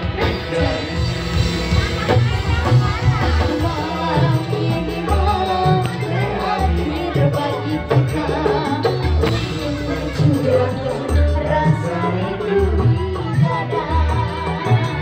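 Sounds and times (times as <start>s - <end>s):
hand drum: 0.0s - 15.0s
man and woman singing: 0.0s - 15.0s.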